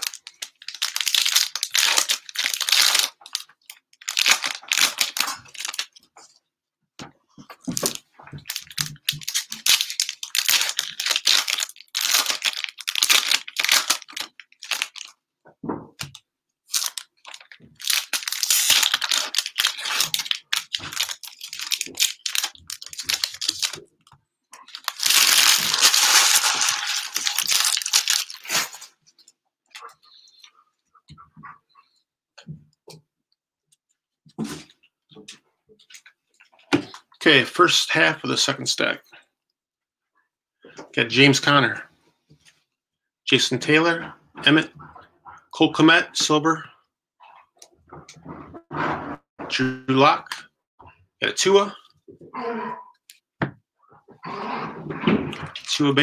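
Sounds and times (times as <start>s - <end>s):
cellophane wrappers crinkling and tearing: 0.0s - 6.0s, 7.8s - 15.2s, 16.7s - 23.9s, 24.6s - 29.0s.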